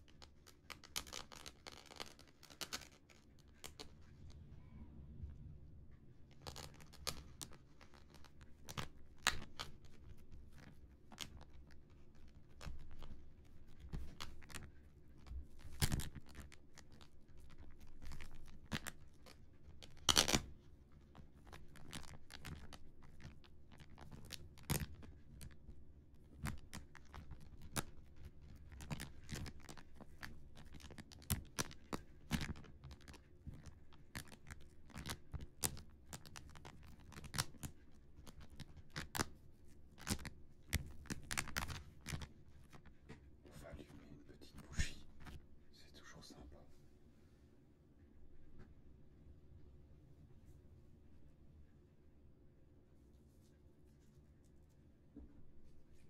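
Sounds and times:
fingertips tapping and scratching: 0:00.0 - 0:04.4, 0:06.3 - 0:45.5.

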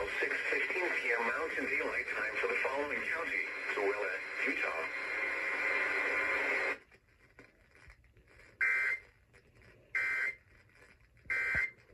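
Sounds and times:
noisy radio broadcast: 0:00.0 - 0:07.0.

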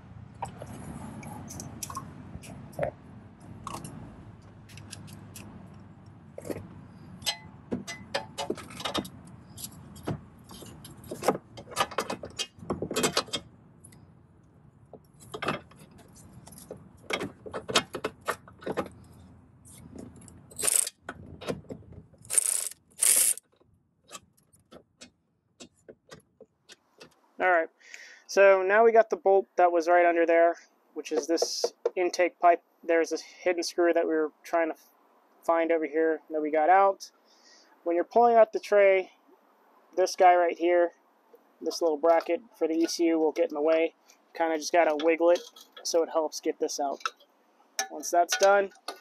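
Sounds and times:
metal scraping: 0:15.0 - 0:23.4
wrench clicking on a bolt: 0:20.6 - 0:21.0, 0:22.3 - 0:23.4.

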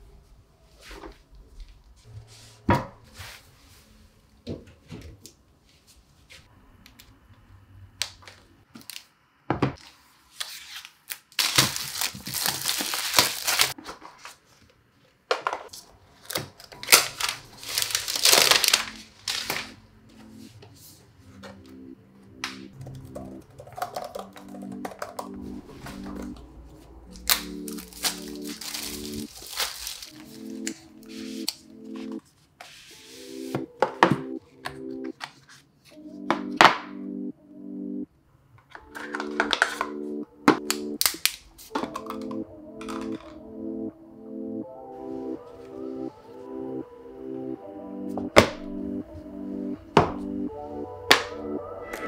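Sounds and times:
packaging crinkling and rustling: 0:09.8 - 0:14.6, 0:15.7 - 0:19.8, 0:27.2 - 0:30.8
background music chords: 0:17.2 - 0:29.3, 0:29.9 - 0:32.2, 0:32.9 - 0:35.2, 0:36.0 - 0:38.1, 0:38.8 - 0:52.0.

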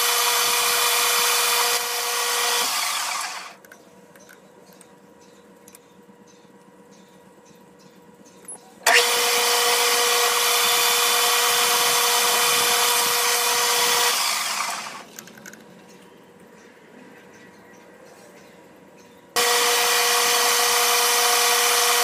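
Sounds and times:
metal lathe whining: 0:00.0 - 0:03.6, 0:08.9 - 0:15.1, 0:19.4 - 0:22.0.

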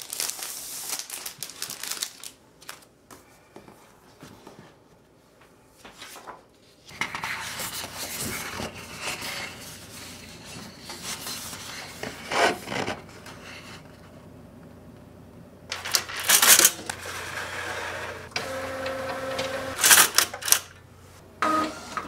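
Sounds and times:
paper sheets sliding and rubbing: 0:05.8 - 0:14.0.

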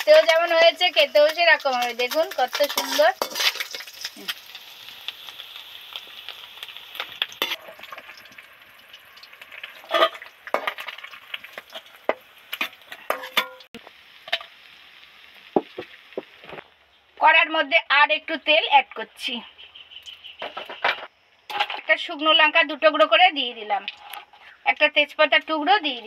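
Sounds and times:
fish sizzling in hot oil: 0:00.0 - 0:16.6
metal spatula knocking pan: 0:13.1 - 0:13.7.

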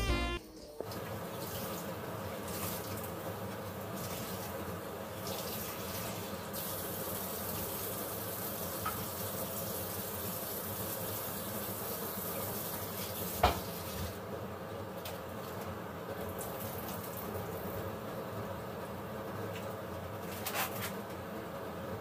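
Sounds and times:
water running from a tap: 0:00.8 - 0:14.2, 0:16.3 - 0:17.7.

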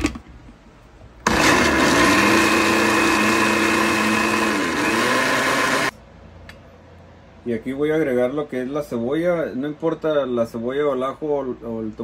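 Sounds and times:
blender chopping in glass jar: 0:01.3 - 0:05.9.

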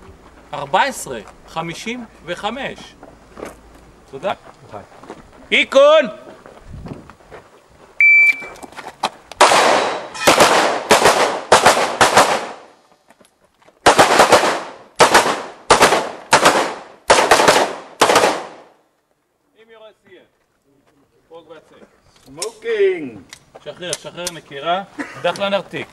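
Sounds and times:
shot timer beep: 0:08.0 - 0:08.6
pistol firing rapid shots: 0:09.4 - 0:12.7, 0:13.8 - 0:18.7.

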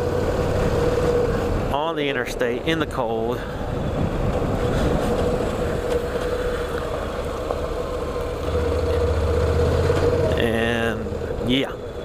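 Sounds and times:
motorcycle engine running: 0:05.0 - 0:12.0.

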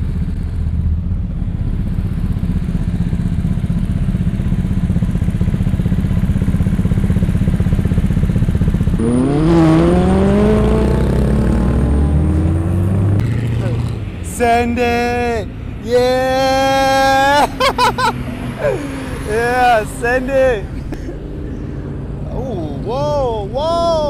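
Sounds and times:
car engine revving: 0:08.8 - 0:23.6.

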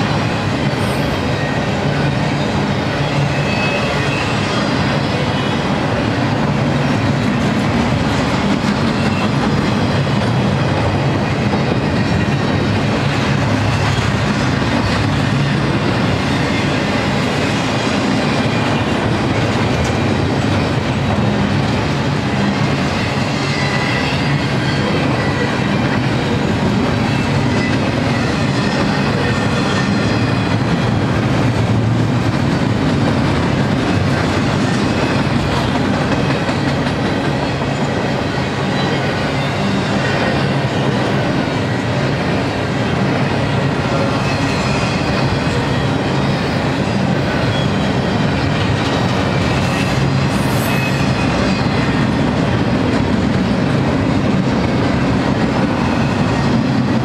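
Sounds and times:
steel wheels on rail: 0:00.0 - 0:57.0.

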